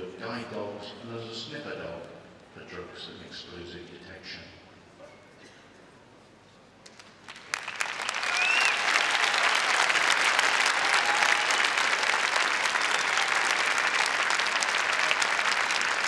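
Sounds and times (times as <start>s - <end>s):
crowd applauding: 6.9s - 16.0s.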